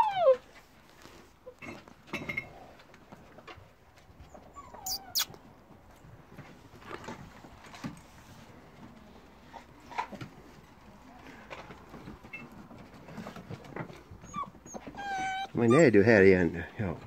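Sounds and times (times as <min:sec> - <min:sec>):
puppy squeaking: 0:04.3 - 0:05.4, 0:14.2 - 0:16.0
paws on wooden boards: 0:05.7 - 0:15.9.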